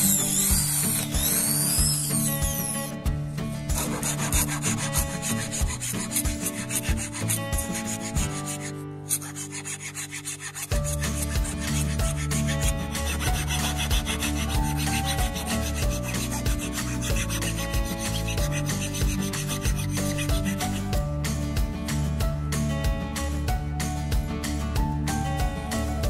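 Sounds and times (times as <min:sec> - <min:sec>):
metal file rasping on wood: 0:00.0 - 0:02.9, 0:03.7 - 0:21.0.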